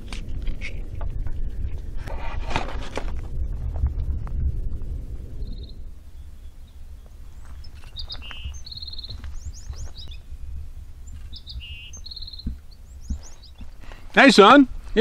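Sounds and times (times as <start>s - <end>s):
steady low rumble: 0.0s - 15.0s
songbird singing: 5.2s - 14.4s.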